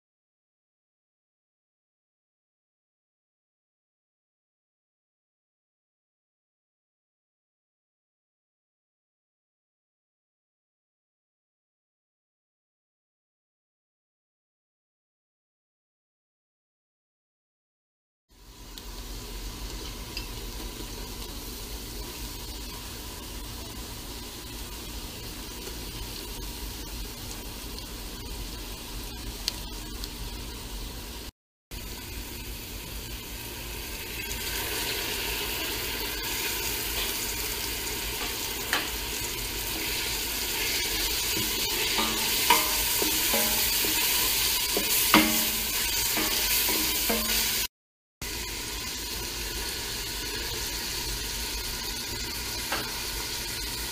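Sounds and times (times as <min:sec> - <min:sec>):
vegetables sizzling in oil: 0:18.3 - 0:53.9
wooden spoon stirring and scraping: 0:40.6 - 0:47.6
spoon knocking against pot: 0:41.4 - 0:47.6.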